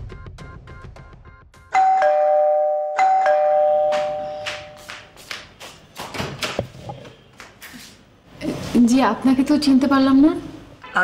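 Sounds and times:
two-tone doorbell chime: 0:01.7 - 0:04.8.

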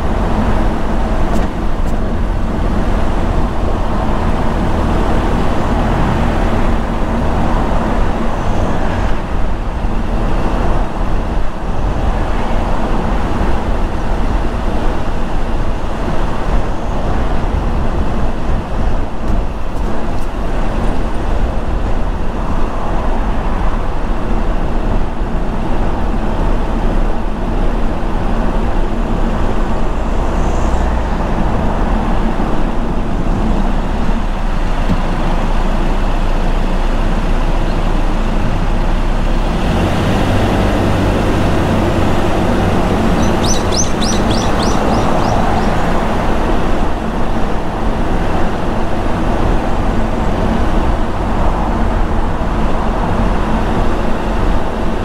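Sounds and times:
low engine hum: 0:00.0 - 0:55.0
tyres on road: 0:00.0 - 0:55.0.

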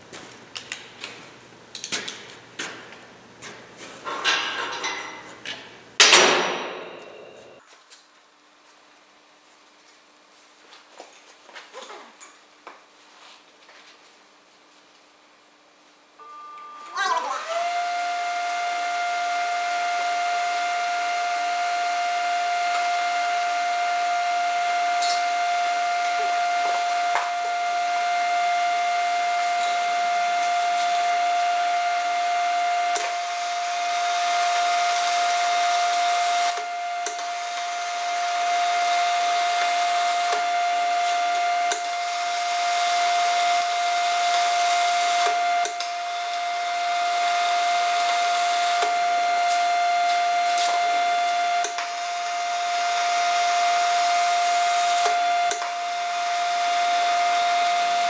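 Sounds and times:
welding arc hissing and crackling: 0:33.0 - 0:58.0.

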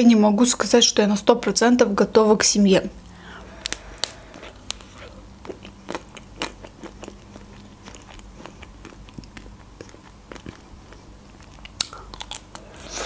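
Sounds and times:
chewing: 0:03.0 - 0:13.0
chocolate coating crunching: 0:03.5 - 0:13.0.

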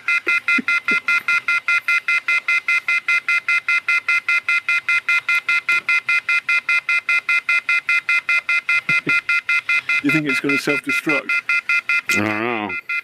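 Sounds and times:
short electronic beeps: 0:00.0 - 0:13.0.

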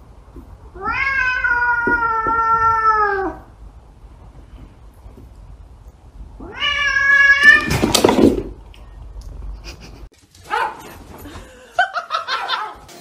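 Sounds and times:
cat screeching: 0:00.8 - 0:03.5, 0:06.4 - 0:07.8
cats yowling: 0:00.8 - 0:03.5, 0:06.4 - 0:07.7.

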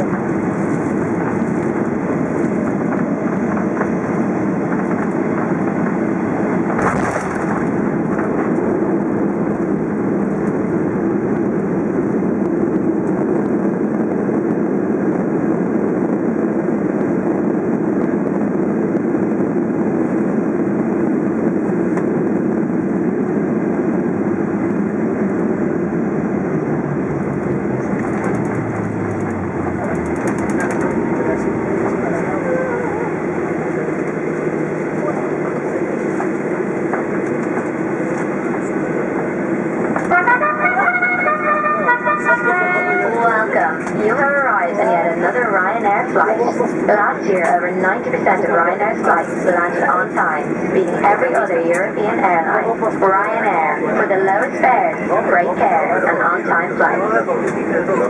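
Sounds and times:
jet engine and airflow rush: 0:00.0 - 0:58.0
engines winding down: 0:26.2 - 0:34.1.

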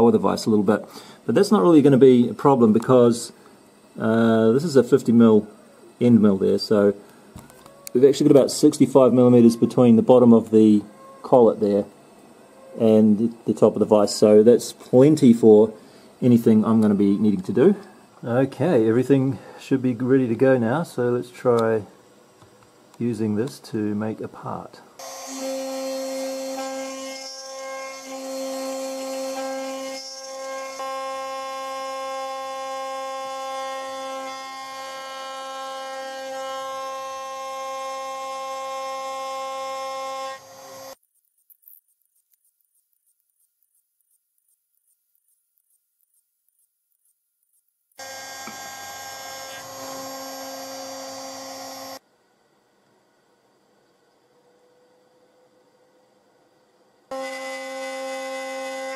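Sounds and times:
router spindle whining: 0:25.0 - 0:41.0, 0:48.0 - 0:52.0, 0:57.1 - 0:58.9
end mill cutting aluminium: 0:48.0 - 0:52.0.

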